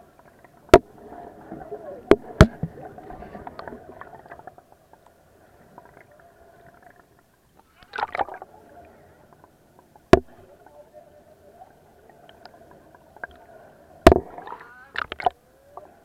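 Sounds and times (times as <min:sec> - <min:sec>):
water splashing: 0:00.0 - 0:08.6, 0:12.0 - 0:15.4
muffled water sloshing: 0:00.0 - 0:10.7, 0:11.7 - 0:15.3.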